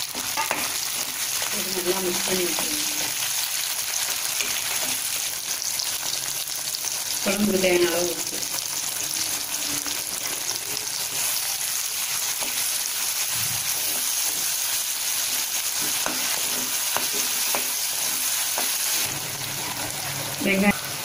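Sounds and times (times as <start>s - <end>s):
steel spoon tapping and scraping pan: 0.0s - 1.2s, 15.3s - 18.8s
onions and tomato sizzling in oil: 0.0s - 21.0s.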